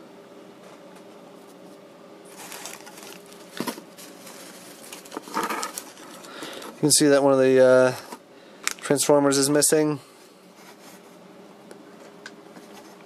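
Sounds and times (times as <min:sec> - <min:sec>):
plastic bag and paper rustling: 0:02.3 - 0:07.0.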